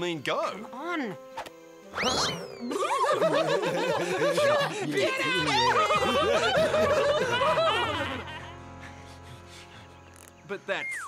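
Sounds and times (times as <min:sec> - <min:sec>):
music: 0:00.0 - 0:11.0
cartoon swoop and falling glides: 0:01.9 - 0:02.8
snickering laughter: 0:02.6 - 0:08.6.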